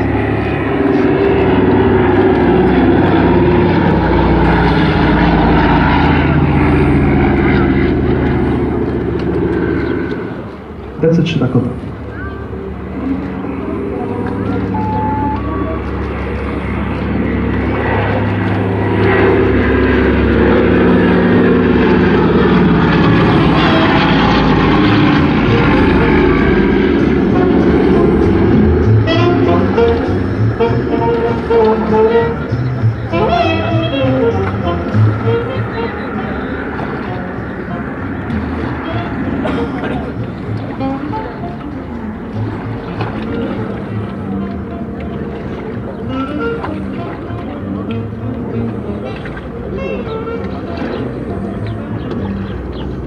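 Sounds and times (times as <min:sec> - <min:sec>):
propeller plane engines: 0:00.0 - 0:53.0.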